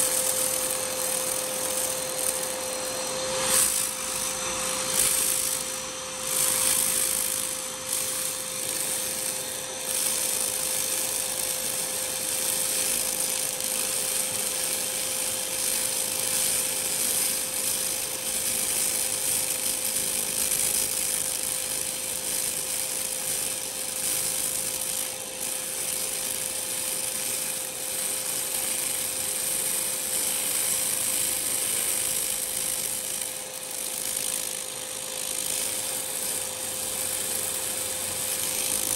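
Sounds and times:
laser cleaner hissing: 0.0s - 38.9s.

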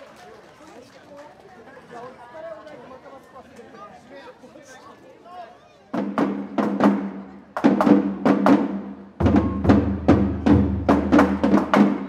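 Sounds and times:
quick sharp taiko drum strikes: 6.0s - 12.0s
deep booming drum: 7.6s - 12.0s.

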